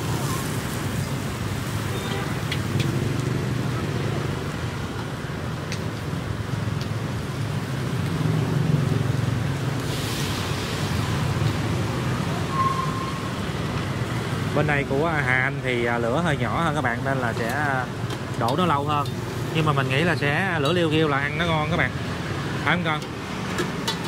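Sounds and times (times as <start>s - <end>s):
gas burners rumbling: 14.0s - 24.0s.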